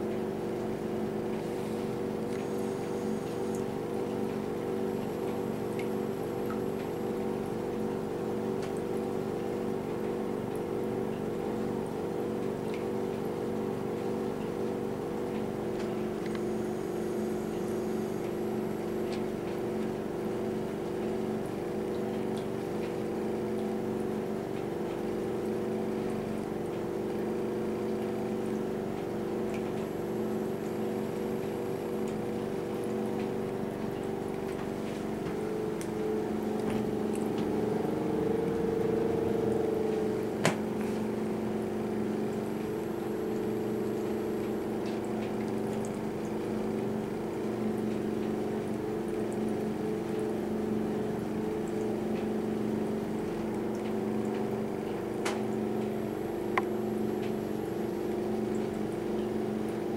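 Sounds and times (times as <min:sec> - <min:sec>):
electric motor hum: 0:34.7 - 0:45.3.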